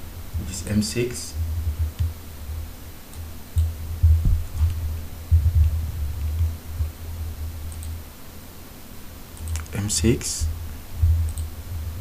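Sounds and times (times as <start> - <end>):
faint clicks: 7.7 - 8.0.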